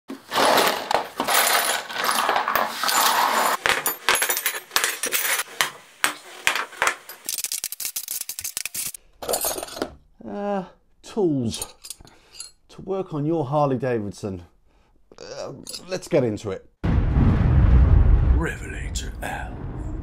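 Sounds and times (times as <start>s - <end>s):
metal tools clattering: 0.3s - 5.4s, 8.1s - 10.0s, 11.5s - 12.6s, 15.6s - 15.9s.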